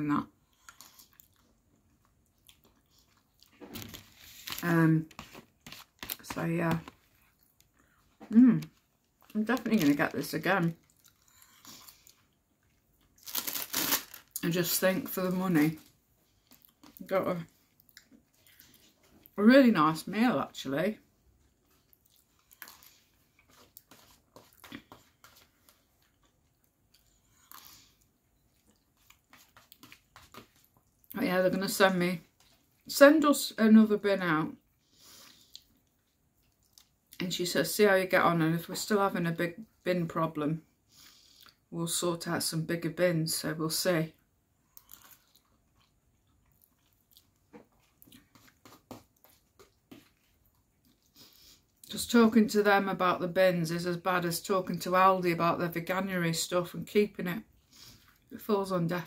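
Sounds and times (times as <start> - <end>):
chewing with mouth smacks: 0.5 - 3.7, 17.6 - 19.4, 21.6 - 31.2, 35.4 - 37.2, 44.7 - 51.9.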